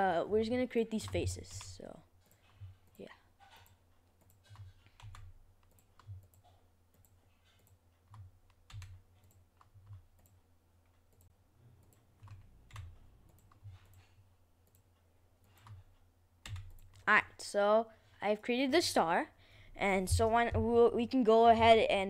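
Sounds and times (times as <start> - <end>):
mouse and keyboard clicks: 11.1 - 17.1.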